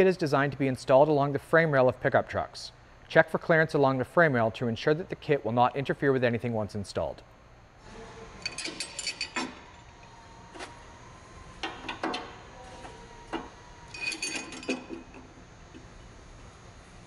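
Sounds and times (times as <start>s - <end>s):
metal clinks and taps: 13.9s - 15.2s.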